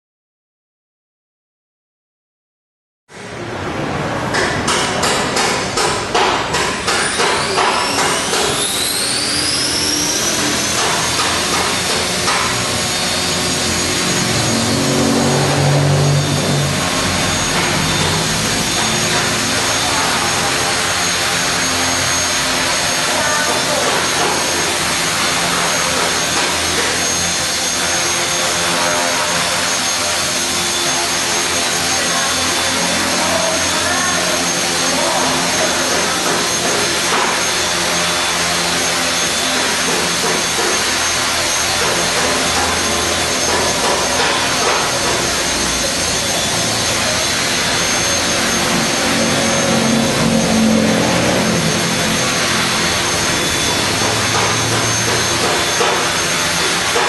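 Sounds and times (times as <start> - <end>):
rotor blades whirring: 4.5 - 57.0
electric motor whining: 6.6 - 57.0.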